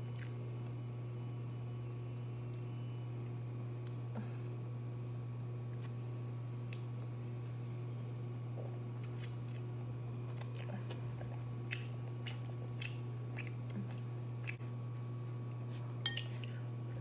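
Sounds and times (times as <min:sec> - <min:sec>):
steady low hum: 0:00.0 - 0:17.0
person chewing chicken wing: 0:10.3 - 0:14.6.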